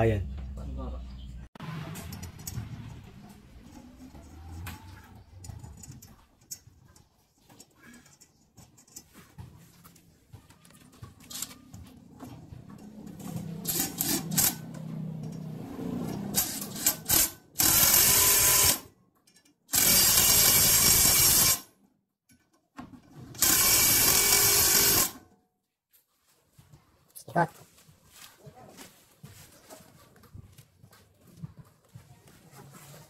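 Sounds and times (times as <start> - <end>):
cordless drill on sheet metal: 16.3 - 18.9, 19.7 - 21.7, 23.3 - 25.2.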